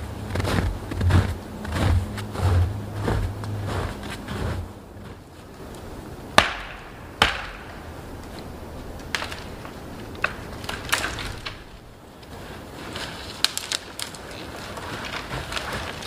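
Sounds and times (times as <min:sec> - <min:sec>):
axe chopping wood: 0:06.4 - 0:07.8
wood cracks and knocks: 0:06.4 - 0:11.9, 0:12.9 - 0:16.0.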